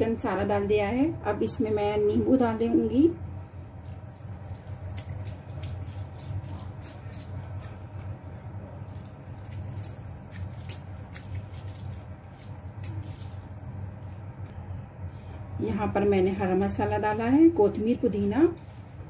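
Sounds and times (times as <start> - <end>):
steady low hum: 0.0 - 19.0
wet squeaks and drips: 3.8 - 8.1, 8.7 - 14.2.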